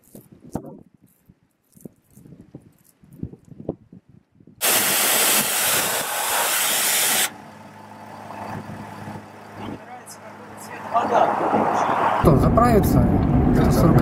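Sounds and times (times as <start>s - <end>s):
pressure washer spraying water: 4.6s - 7.4s.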